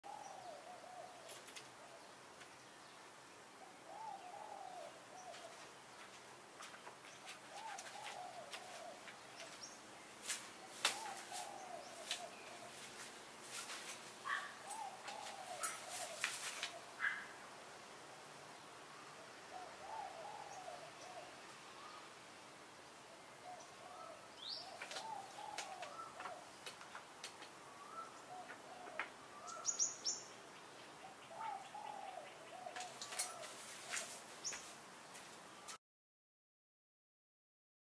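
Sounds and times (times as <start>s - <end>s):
dove cooing: 0.0s - 2.1s, 3.6s - 5.7s, 7.2s - 9.6s, 10.6s - 17.4s, 19.5s - 22.1s, 23.4s - 27.0s, 27.6s - 29.8s, 31.0s - 34.2s
birds chirping: 0.0s - 17.7s, 18.5s - 22.2s, 22.8s - 35.8s.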